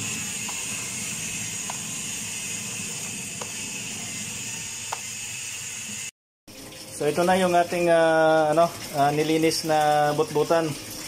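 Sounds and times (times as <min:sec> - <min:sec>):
tap water running into basin: 0:06.5 - 0:11.0.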